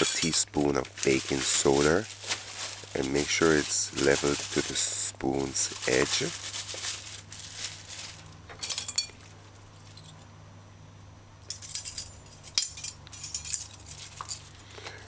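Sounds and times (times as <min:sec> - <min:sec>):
metal measuring spoons clinking: 0:00.0 - 0:00.5, 0:08.6 - 0:09.3, 0:11.5 - 0:14.5.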